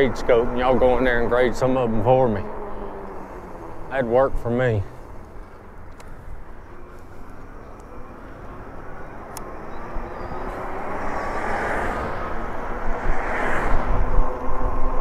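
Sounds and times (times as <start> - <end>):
faint hum: 0.0 - 13.0
wind buffeting: 0.0 - 15.0.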